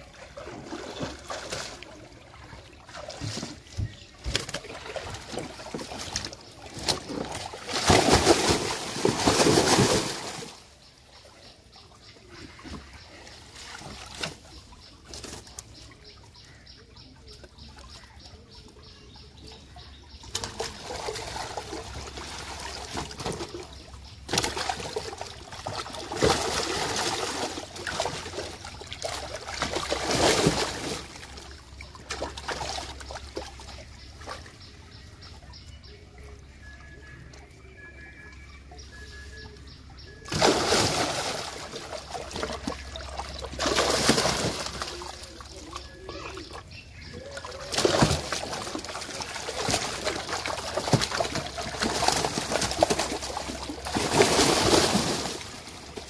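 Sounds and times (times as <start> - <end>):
large fish splashing in water: 0.0 - 10.8, 20.2 - 34.5, 40.0 - 56.0
water trickling and sloshing: 0.0 - 56.0.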